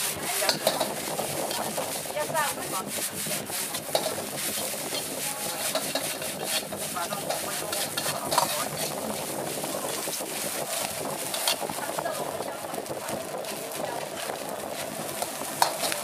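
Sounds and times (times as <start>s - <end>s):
frying sizzle: 0.0s - 16.0s
metal ladle scraping a wok: 0.0s - 16.0s.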